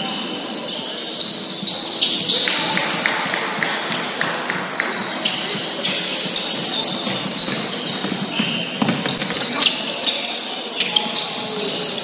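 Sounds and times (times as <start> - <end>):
sneakers squeaking: 0.0 - 3.6, 4.5 - 12.0
basketball bouncing: 2.2 - 9.8.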